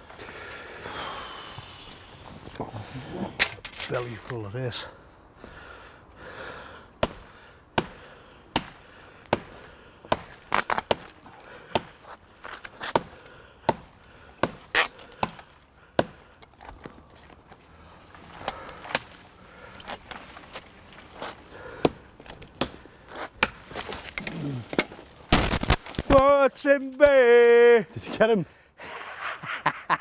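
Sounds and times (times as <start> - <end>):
chopping sapling stems: 7.0 - 17.0, 18.4 - 20.2, 21.2 - 26.3.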